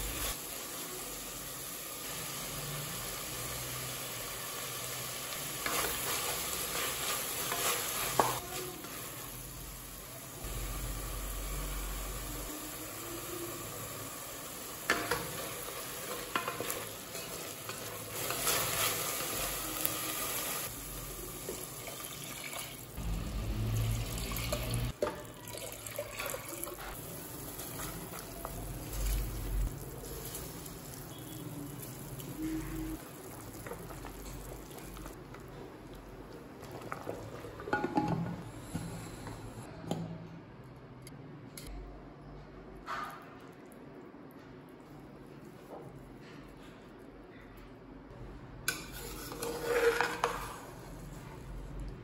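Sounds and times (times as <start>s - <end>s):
spoon scraping sizzling masala: 0.0s - 21.8s, 26.8s - 35.7s, 48.7s - 51.7s
pot bubbling: 20.6s - 38.8s.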